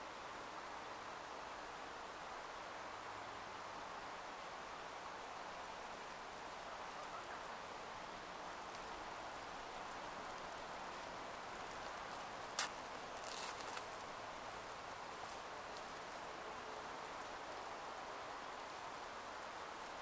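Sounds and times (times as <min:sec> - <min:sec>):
outdoor ambient hiss: 0:00.0 - 0:20.0
rustling: 0:08.6 - 0:16.4.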